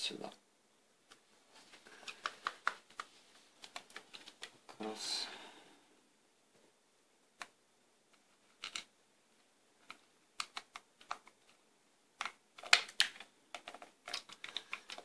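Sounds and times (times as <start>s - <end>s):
plastic clicks and taps: 2.0s - 4.8s.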